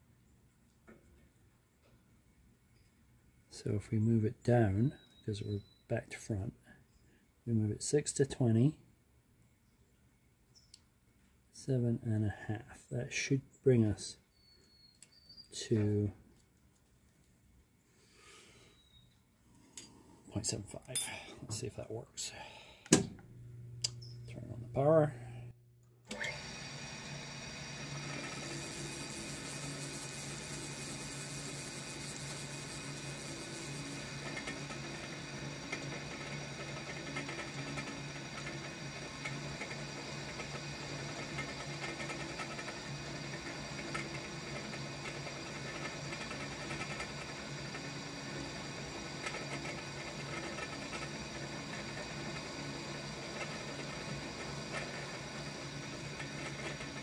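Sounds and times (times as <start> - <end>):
milling spindle motor hum: 26.1 - 57.0.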